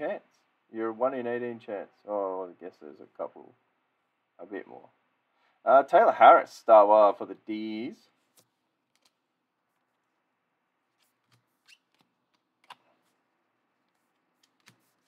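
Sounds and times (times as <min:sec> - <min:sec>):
cardboard cards clicking: 0:11.0 - 0:13.2, 0:13.9 - 0:15.0.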